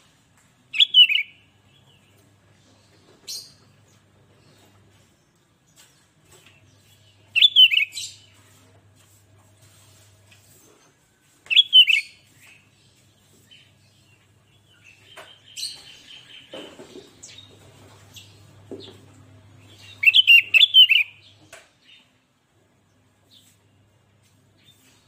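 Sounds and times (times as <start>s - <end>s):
faint bird chips: 11.5s - 12.7s.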